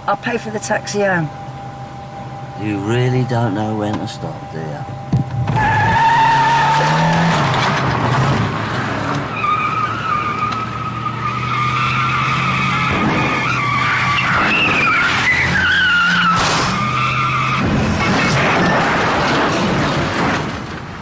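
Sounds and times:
car engine revving: 2.5s - 20.5s
car tyres squealing: 5.2s - 20.5s.

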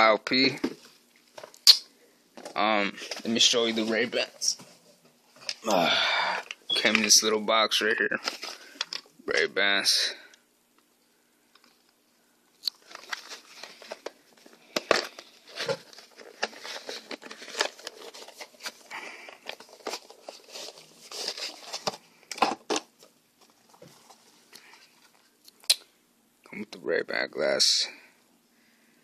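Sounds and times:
cardboard rustling and crinkling: 2.4s - 5.5s, 12.8s - 25.3s.

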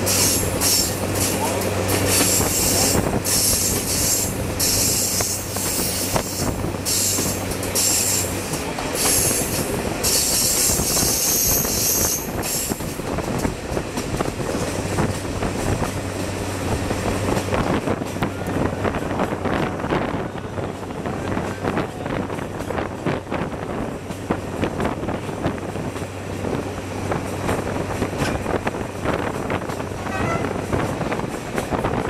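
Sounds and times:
railcar engine hum: 0.0s - 32.0s
train wheels squealing: 0.1s - 1.0s, 2.1s - 8.4s, 9.0s - 12.9s.

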